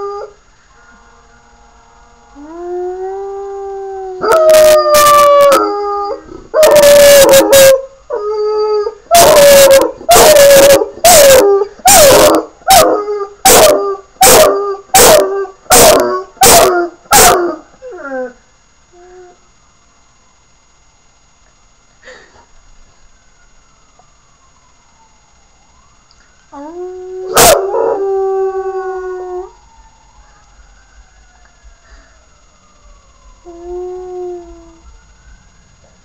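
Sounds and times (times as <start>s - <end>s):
puppy howling: 4.1s - 18.4s, 26.6s - 29.5s.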